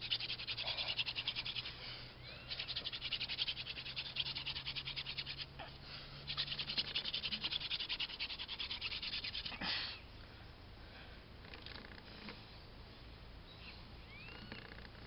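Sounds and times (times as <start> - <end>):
spindle rubbing on fireboard: 0.0 - 1.8, 2.5 - 5.5, 6.3 - 9.5.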